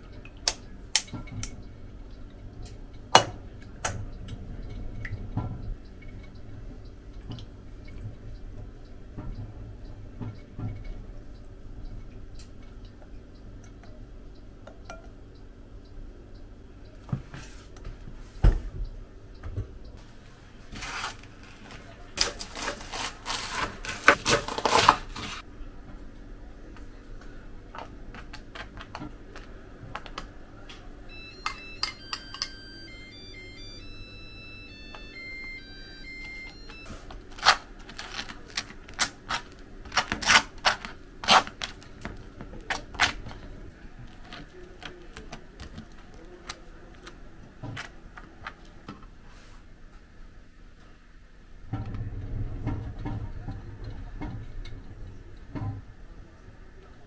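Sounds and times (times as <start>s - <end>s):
electronic beep melody: 31.1s - 37.0s.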